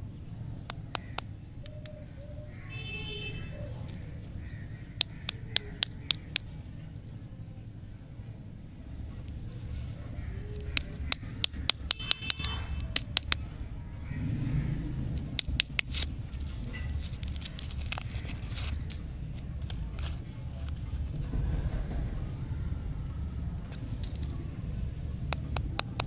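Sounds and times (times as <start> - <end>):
wrapper crinkling: 15.8 - 20.3
low rumble: 16.1 - 25.6.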